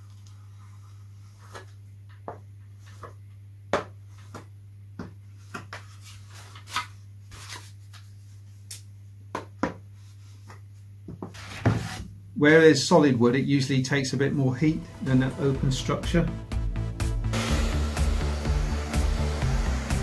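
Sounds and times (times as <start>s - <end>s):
steady low hum: 12.1s - 20.0s.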